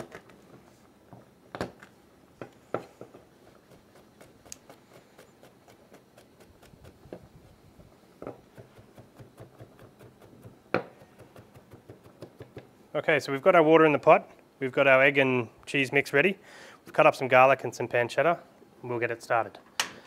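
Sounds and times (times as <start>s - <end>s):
knife chopping on plastic board: 8.2s - 12.7s.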